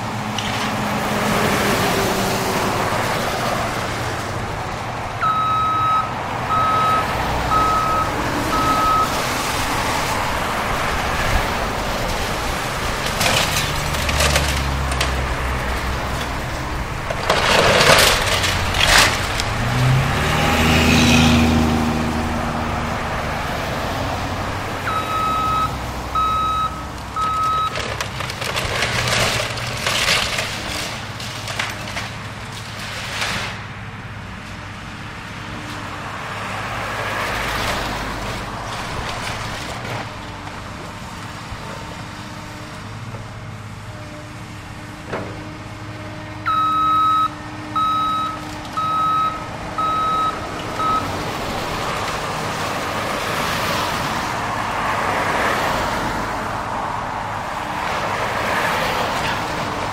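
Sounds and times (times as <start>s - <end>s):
excavator diesel engine revving: 0.0s - 31.9s, 44.4s - 59.9s
backup alarm beeping: 5.2s - 9.2s, 24.9s - 27.8s, 46.5s - 51.2s
falling debris: 6.5s - 22.2s, 26.2s - 33.7s
timber cracking and crashing: 8.8s - 22.1s, 27.0s - 33.7s.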